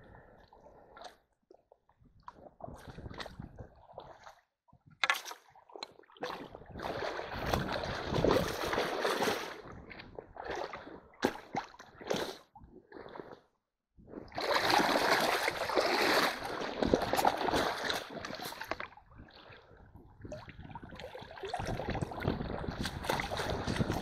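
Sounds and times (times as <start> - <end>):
boots splashing in stream: 6.2 - 9.6, 10.4 - 12.4, 14.3 - 18.9, 21.6 - 24.0.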